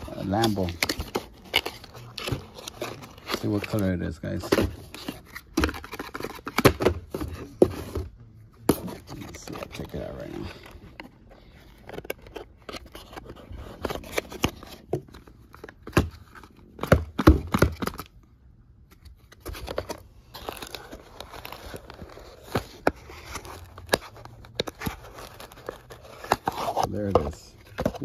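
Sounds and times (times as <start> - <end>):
cardboard box scrapes and clicks: 20.3 - 28.0.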